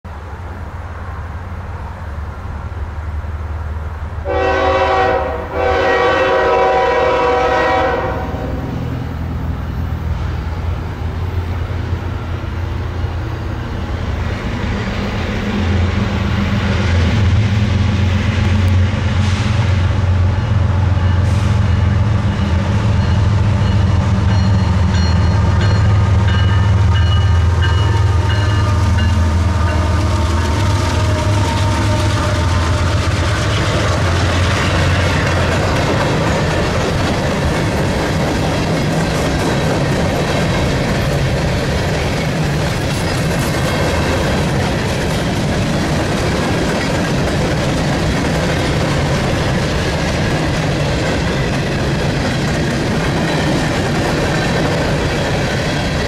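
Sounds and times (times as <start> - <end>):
diesel locomotive engines rumbling: 0.1 - 56.0
train air horn blasts: 4.2 - 9.0, 21.1 - 22.2, 26.5 - 33.6.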